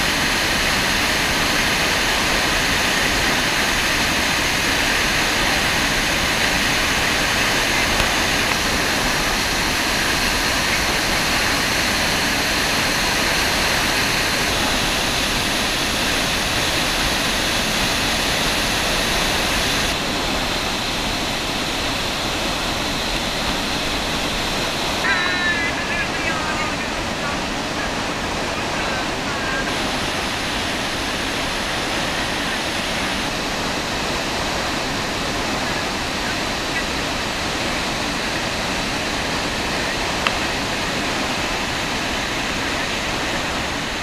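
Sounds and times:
waterfall rushing: 0:00.0 - 0:44.0.

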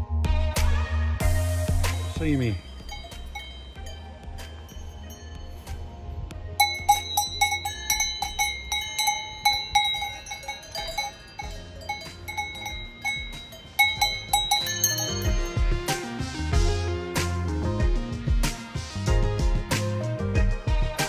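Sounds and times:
cattle bell clanking: 0:02.6 - 0:05.9, 0:06.6 - 0:16.2.

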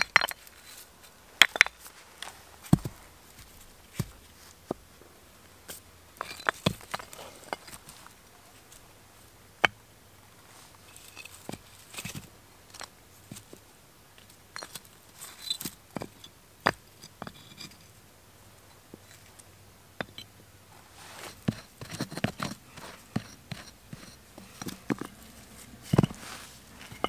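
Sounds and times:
stones scraping: 0:00.0 - 0:04.8, 0:05.7 - 0:08.8, 0:10.6 - 0:13.6, 0:14.6 - 0:17.9, 0:20.0 - 0:27.0
stone on stone knocks: 0:25.9 - 0:26.2.

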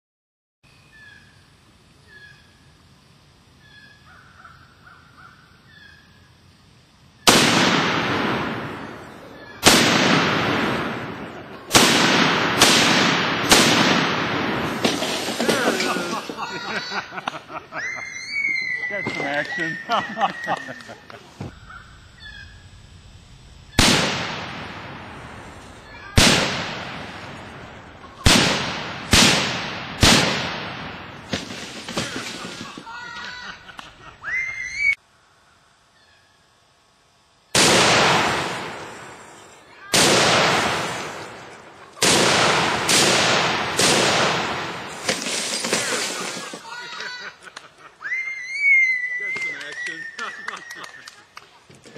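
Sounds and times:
faint bird calls: 0:00.7 - 0:02.7, 0:03.6 - 0:06.4, 0:17.7 - 0:22.8, 0:32.0 - 0:36.6
rifle shots echoing: 0:07.3 - 0:15.9, 0:23.7 - 0:32.8, 0:37.6 - 0:39.2, 0:39.9 - 0:46.5.

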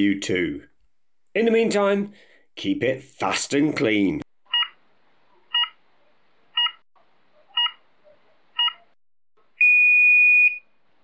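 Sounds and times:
long steady beep: 0:09.6 - 0:10.7.

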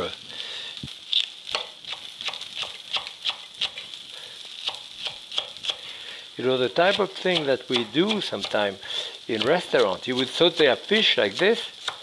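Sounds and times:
fish sizzling in oil: 0:00.0 - 0:12.0
knife tapping on cutting board: 0:07.4 - 0:08.6.

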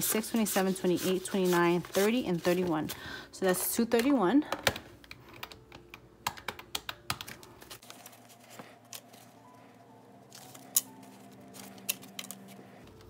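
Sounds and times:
banknotes rustling: 0:00.0 - 0:03.1, 0:07.5 - 0:13.0
faint background music: 0:00.0 - 0:13.0.

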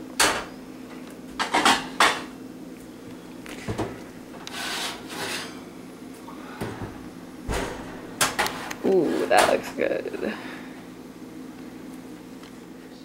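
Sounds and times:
baking sheet scraping on oven rack: 0:04.4 - 0:05.6, 0:07.5 - 0:09.7
oven door opening: 0:06.6 - 0:09.6.

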